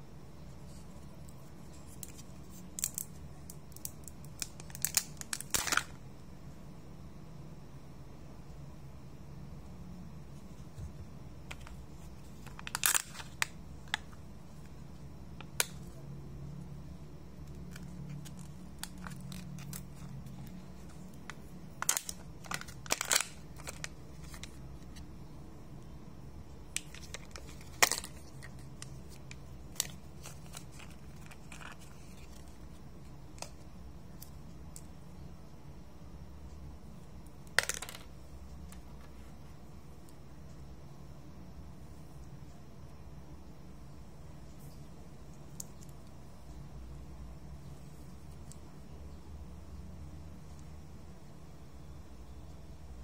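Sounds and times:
steady low hum: 0:00.0 - 0:53.0
plastic wrapper crinkling and tearing: 0:03.8 - 0:05.9, 0:11.6 - 0:14.1, 0:17.7 - 0:21.0, 0:21.8 - 0:24.6, 0:26.8 - 0:32.6.

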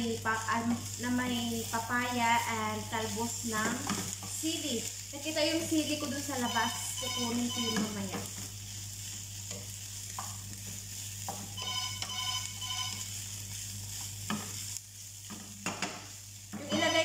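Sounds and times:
food sizzling in a frying pan: 0:00.0 - 0:17.0
wooden spatula scraping a pan: 0:05.9 - 0:17.0.

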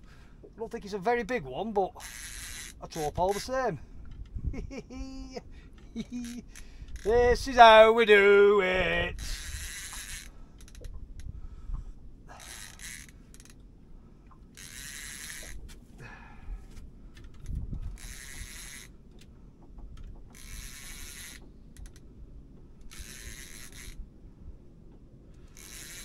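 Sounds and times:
fishing reel winding: 0:02.0 - 0:03.5, 0:06.1 - 0:07.1, 0:09.3 - 0:10.9, 0:12.3 - 0:13.6, 0:14.6 - 0:15.6, 0:17.4 - 0:18.9, 0:20.4 - 0:22.0, 0:22.9 - 0:24.0, 0:25.6 - 0:26.0.

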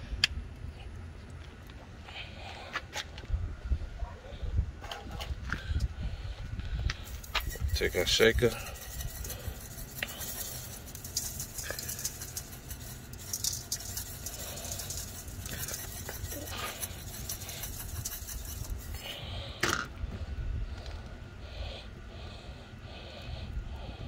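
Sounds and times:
low rumble: 0:03.2 - 0:13.2
seasoning shaker rattling: 0:07.0 - 0:19.2.

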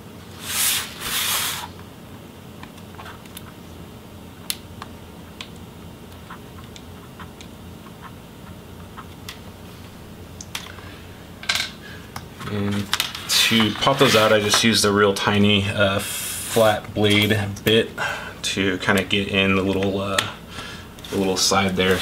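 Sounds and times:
handling scrape: 0:13.1 - 0:14.6, 0:21.0 - 0:22.0.

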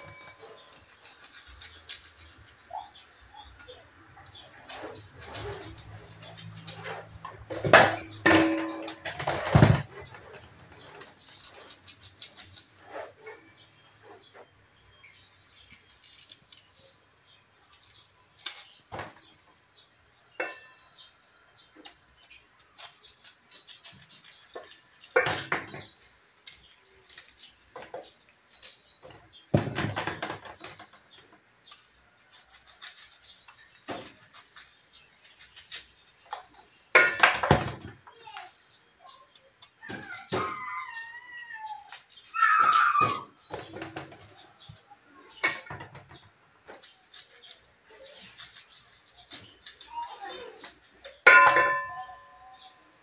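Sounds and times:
faint bird chirps: 0:00.0 - 0:07.0, 0:38.1 - 0:53.0
clattering handling noises: 0:04.6 - 0:13.4.

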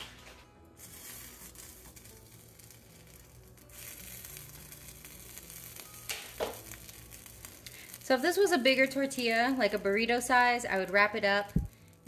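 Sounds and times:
tortilla sizzling in pan: 0:00.0 - 0:12.0.

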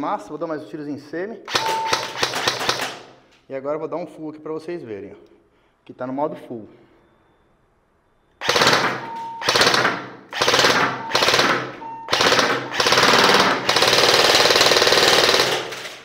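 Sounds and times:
airsoft gun firing bursts: 0:01.5 - 0:03.1, 0:08.4 - 0:16.0.

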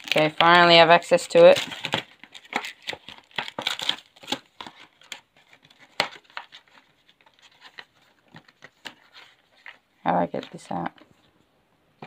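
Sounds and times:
paper and plastic packaging tearing: 0:00.0 - 0:07.8.

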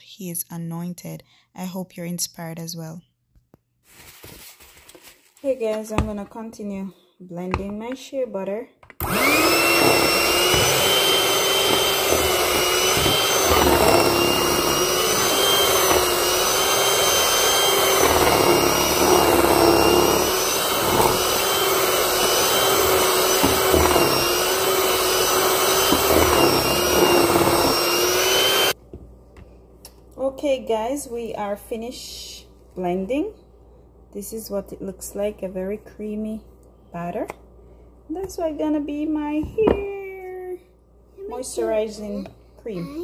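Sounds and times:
electric hand mixer whining: 0:09.0 - 0:28.8.

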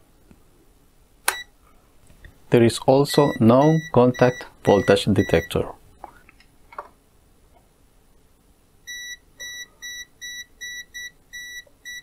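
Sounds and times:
voltage detector beeping: 0:03.2 - 0:05.6.

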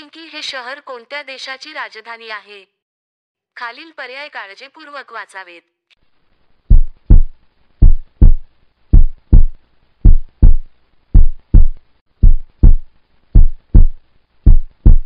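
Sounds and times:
heartbeat thumps: 0:06.7 - 0:15.0.

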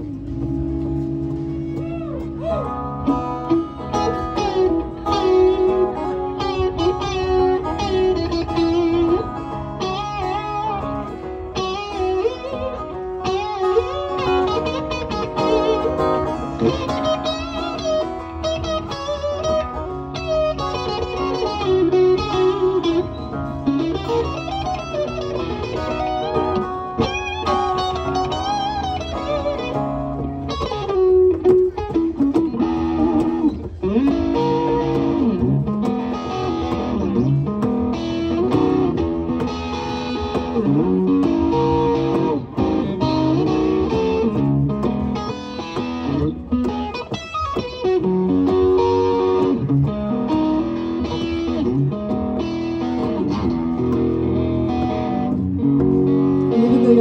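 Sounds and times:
acoustic guitar: 0:00.0 - 0:57.0
electric guitar lead lines: 0:00.0 - 0:57.0.

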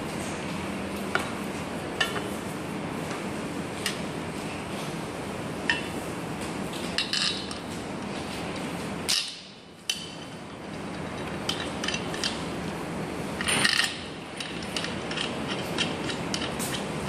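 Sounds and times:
metal clicks and clinks: 0:13.4 - 0:16.8.

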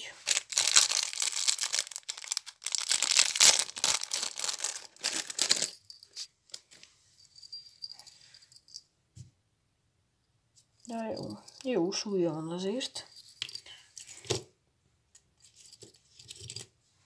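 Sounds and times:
plastic bag crinkling: 0:00.2 - 0:06.0.

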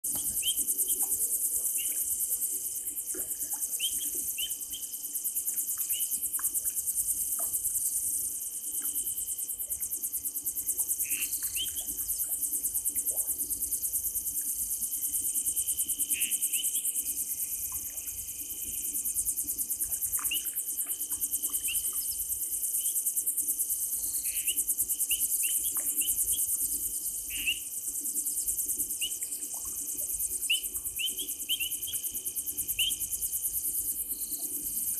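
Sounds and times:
crickets trilling: 0:00.0 - 0:34.9.

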